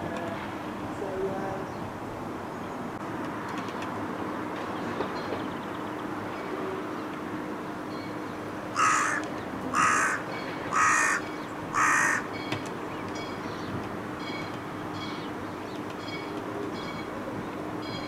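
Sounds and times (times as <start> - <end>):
crow cawing: 8.8 - 12.4.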